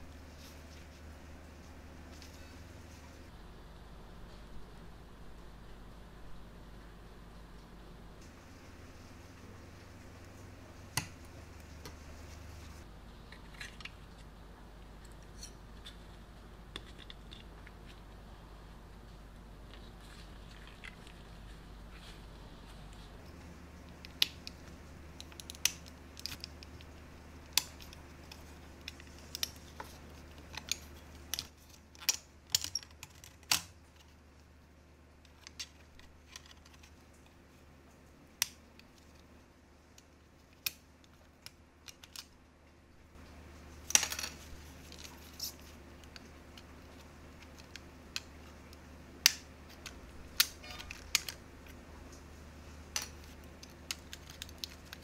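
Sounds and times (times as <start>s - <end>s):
plastic parts clicking: 23.9s - 34.2s, 40.0s - 42.4s, 43.9s - 51.8s, 52.9s - 55.0s.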